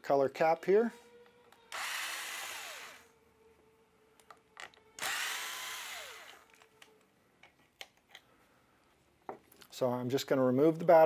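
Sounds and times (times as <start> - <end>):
electric screwdriver whine: 1.7 - 3.1, 5.0 - 6.6.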